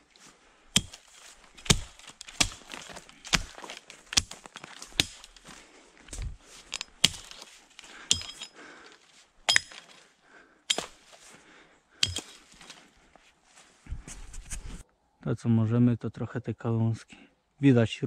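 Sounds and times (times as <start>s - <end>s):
dry branches cracking and snapping: 0.8s - 10.0s.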